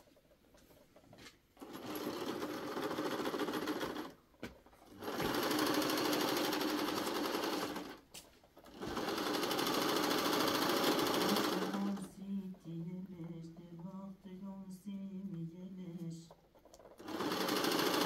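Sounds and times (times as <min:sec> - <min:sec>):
sewing machine stitching: 0:01.6 - 0:13.9, 0:16.0 - 0:18.0.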